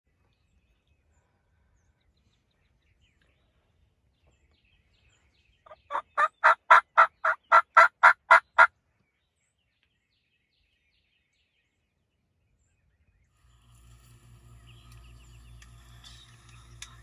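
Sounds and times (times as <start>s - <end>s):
turkey yelping: 5.7s - 8.7s.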